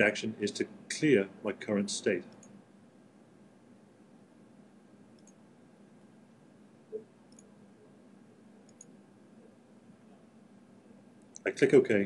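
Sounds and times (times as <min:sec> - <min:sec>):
faint computer mouse clicks: 0:02.3 - 0:02.6, 0:05.2 - 0:05.4, 0:06.9 - 0:07.5, 0:08.6 - 0:09.0.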